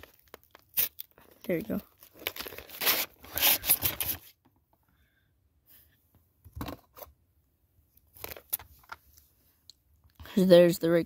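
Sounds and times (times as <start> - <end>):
packaging tearing and crinkling: 0.0 - 4.2.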